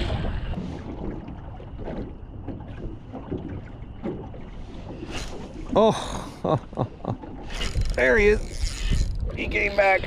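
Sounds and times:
water slapping against boat hull: 0.0 - 5.8
wind buffeting the microphone: 7.5 - 10.0.

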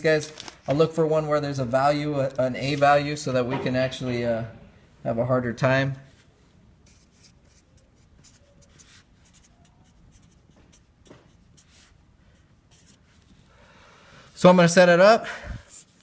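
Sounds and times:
marker writing on paper: 6.8 - 13.5.

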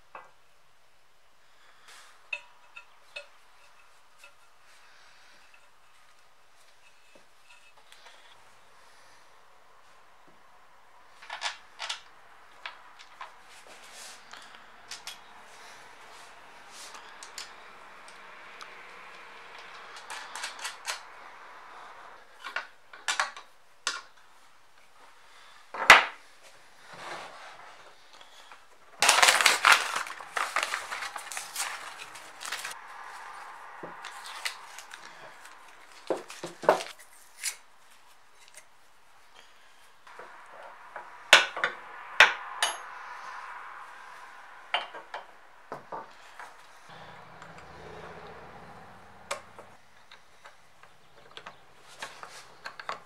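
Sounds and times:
metal parts clicking and knocking: 19.5 - 21.1.

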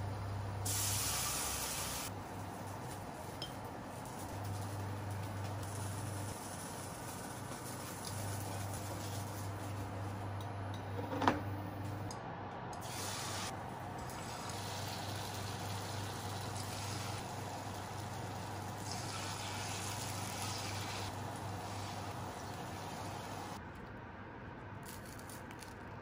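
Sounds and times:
food sizzling in hot oil: 12.8 - 23.6.

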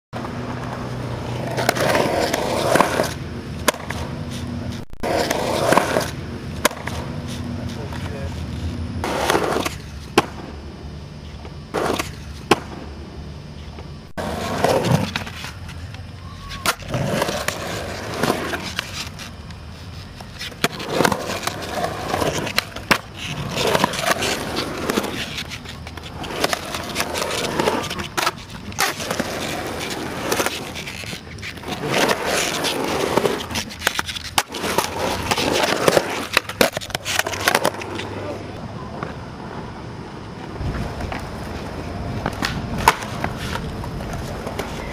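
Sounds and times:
skateboard wheels rolling on concrete: 0.1 - 44.9
skateboard clacking on ground: 0.2 - 10.6, 11.4 - 12.9, 13.6 - 39.6, 40.2 - 44.9.

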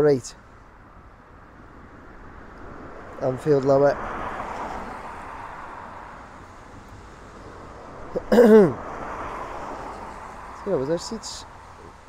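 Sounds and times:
outdoor background noise: 0.0 - 12.0
man clearing throat: 8.2 - 8.8.

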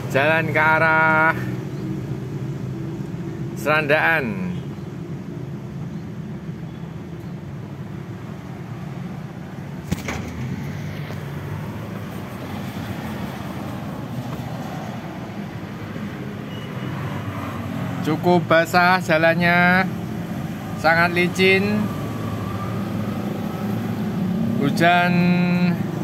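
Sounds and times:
vehicle running: 8.7 - 26.0
sharp click: 9.8 - 11.2.

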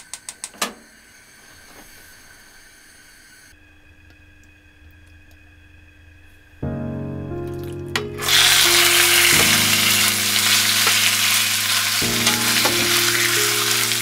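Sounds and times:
food sizzling in oiled pan: 8.2 - 14.0.

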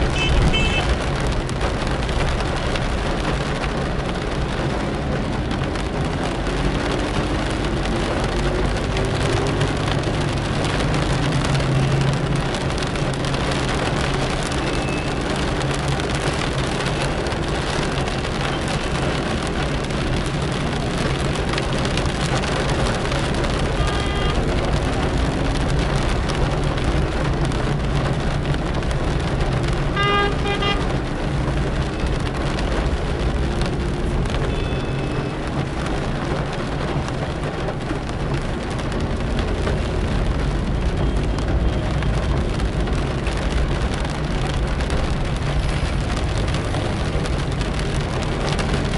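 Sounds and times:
rain: 0.0 - 48.9
tyres on wet road: 0.0 - 48.9
car horn beeps: 0.1 - 0.9, 23.8 - 24.4, 30.0 - 30.8, 34.5 - 35.2.

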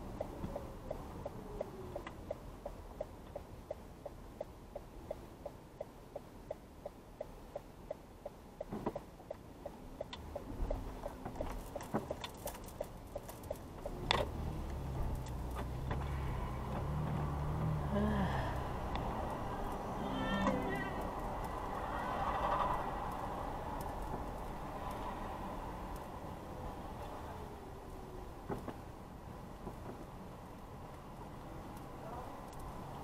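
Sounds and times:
turn-signal indicator ticking: 0.0 - 16.1
scattered clicks: 0.0 - 17.7, 31.7 - 33.0.

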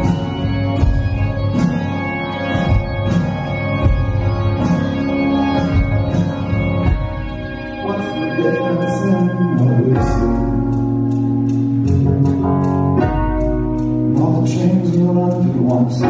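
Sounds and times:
deep bass line: 0.0 - 16.0
high percussion ticks: 0.0 - 16.0
keyboard chords: 0.0 - 16.0
man singing: 7.8 - 10.8, 14.1 - 16.0.

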